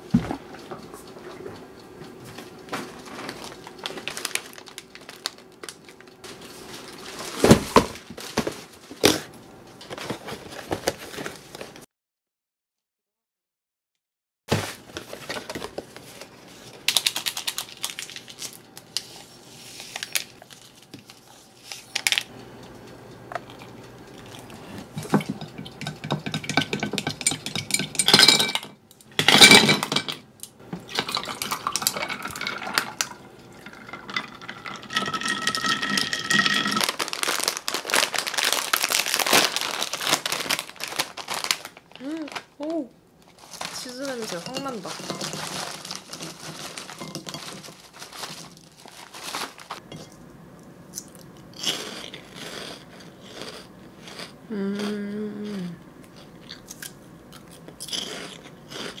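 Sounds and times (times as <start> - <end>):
foil bag crinkling: 2.9 - 9.0, 14.5 - 22.3, 31.0 - 49.8
ice and utensils clinking on mug: 25.0 - 30.2, 30.9 - 37.0, 44.2 - 47.7.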